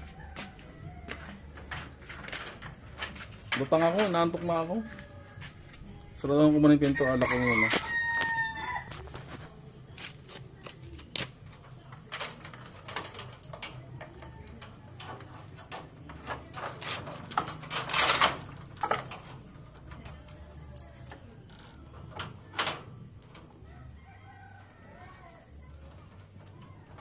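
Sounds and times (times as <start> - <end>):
chain and padlock clanking on gate: 1.7 - 4.6, 11.5 - 23.4.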